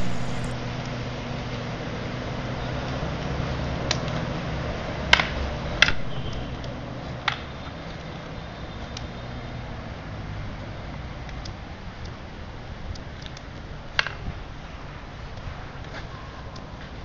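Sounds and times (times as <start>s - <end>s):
steady low hum: 0.0s - 0.6s.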